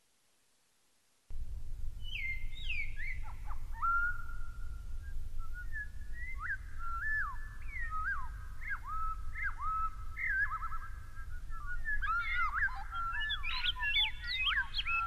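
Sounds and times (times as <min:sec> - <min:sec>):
steady low rumble: 0:01.3 - 0:10.3
gliding whistled notes: 0:02.1 - 0:15.0.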